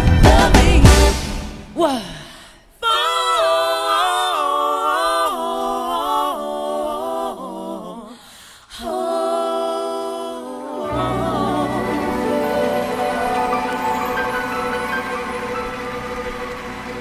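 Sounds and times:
voices singing held notes: 2.8s - 17.0s
low instruments: 10.4s - 17.0s.

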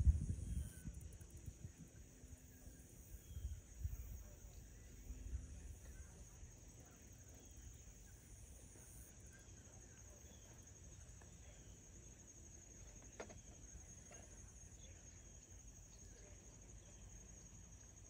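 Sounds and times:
low rumble on microphone: 0.0s - 2.2s
high-pitched insect chorus: 0.0s - 18.0s
faint chirps: 0.1s - 18.0s.

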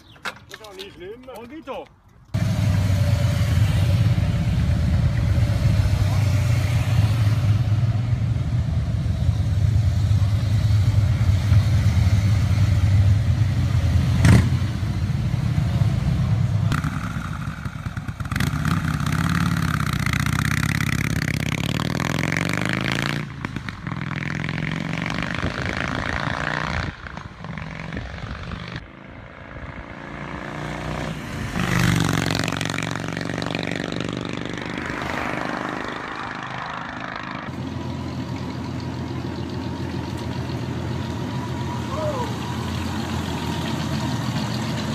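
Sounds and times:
motorcycle engine rumbling: 0.0s - 44.9s
motorcycle revving and passing: 2.3s - 44.9s
motorcycle exhaust crack: 16.7s - 21.6s.

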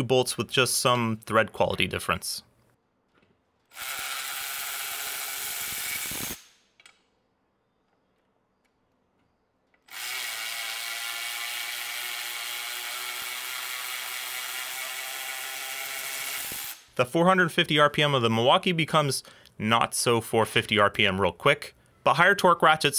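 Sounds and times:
cordless ratchet spinning nut: 3.7s - 6.6s, 9.9s - 16.9s.

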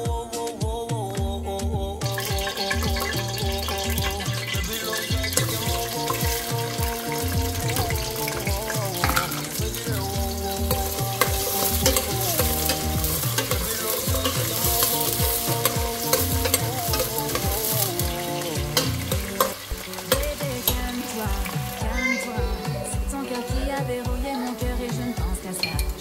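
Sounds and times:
music with steady beat: 0.0s - 26.0s
food sizzling in a pot: 2.0s - 26.0s.

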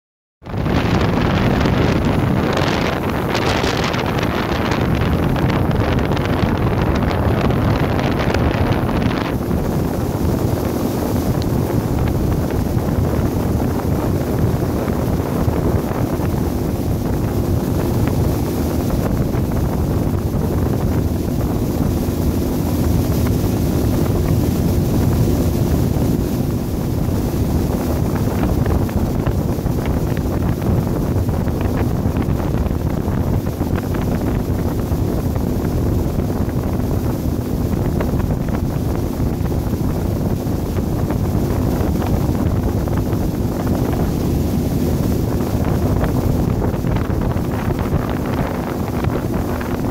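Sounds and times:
wind buffeting microphone: 0.4s - 49.9s
motorboat engine drone: 0.5s - 49.9s.

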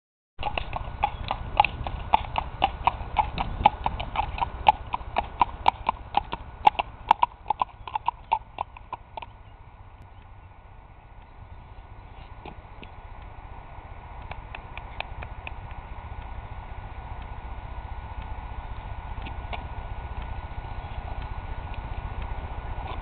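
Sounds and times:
horse hoofbeats: 0.4s - 9.8s, 14.1s - 23.0s.

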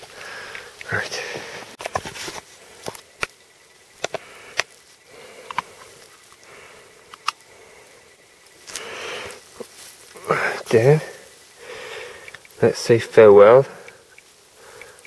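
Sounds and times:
low hiss: 0.0s - 15.0s
sharp taps and clicks: 12.2s - 12.6s, 13.8s - 15.0s.

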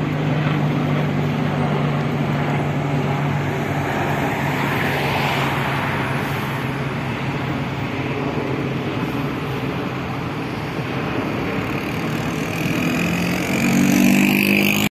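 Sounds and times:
road traffic passing: 0.0s - 14.9s.

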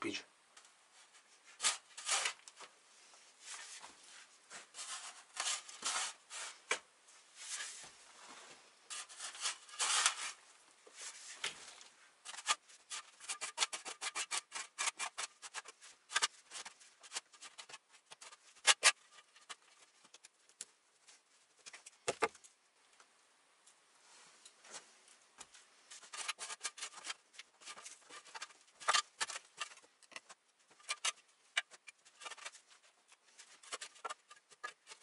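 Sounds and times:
shovel scraping soil: 8.9s - 10.4s, 12.3s - 17.8s.

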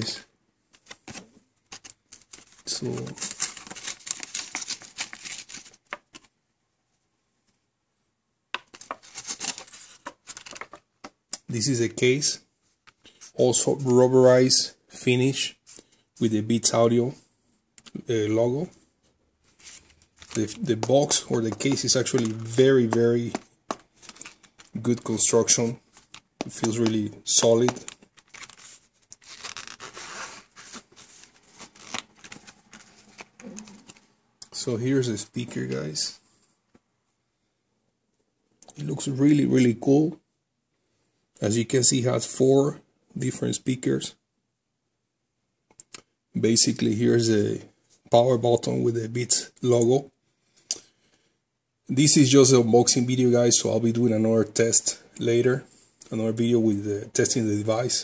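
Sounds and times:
plastic packaging crackling: 0.8s - 6.3s, 8.6s - 10.9s, 19.6s - 34.1s
plastic wrapping crinkling: 0.8s - 6.3s, 8.6s - 10.9s, 19.6s - 34.1s.

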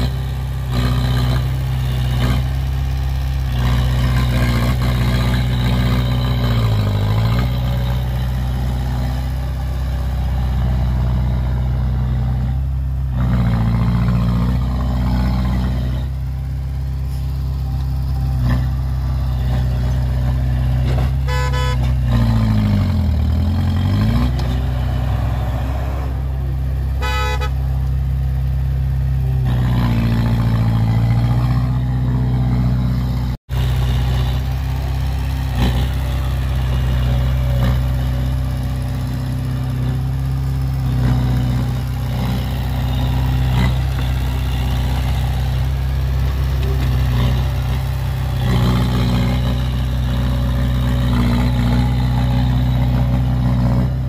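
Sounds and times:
diesel engines revving under load: 0.0s - 54.0s
short horn toot: 21.0s - 22.1s, 27.0s - 27.7s.

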